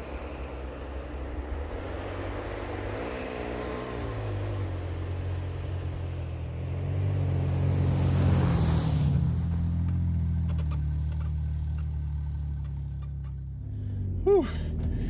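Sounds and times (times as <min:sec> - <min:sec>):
truck engine: 0:00.0 - 0:15.0
tyres hissing through snow: 0:01.9 - 0:09.9.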